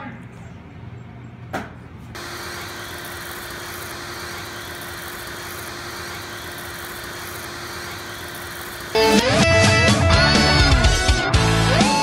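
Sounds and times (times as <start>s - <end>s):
vacuum cleaner running: 2.2s - 9.9s.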